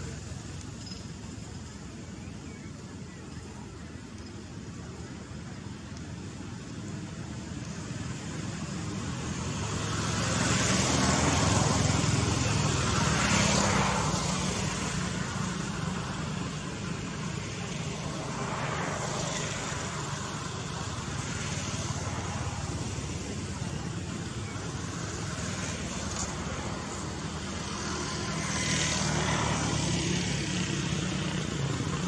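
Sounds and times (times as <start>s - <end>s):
vehicle passing on road: 7.6s - 32.0s.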